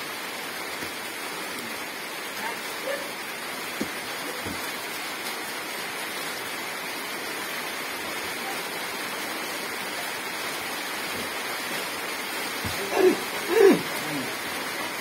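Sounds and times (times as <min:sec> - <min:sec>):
steady rushing hiss: 0:03.0 - 0:15.0.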